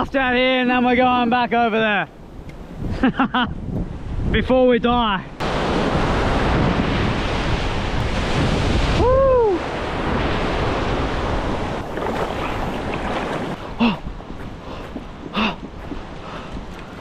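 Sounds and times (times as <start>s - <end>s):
ocean surf breaking on rock: 5.4s - 14.2s.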